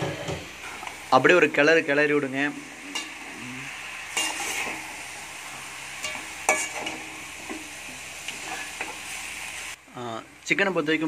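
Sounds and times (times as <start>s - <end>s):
chicken sizzling in hot oil: 0.0s - 11.0s
metal ladle scraping pan: 2.5s - 3.4s, 4.0s - 5.1s, 5.9s - 9.2s.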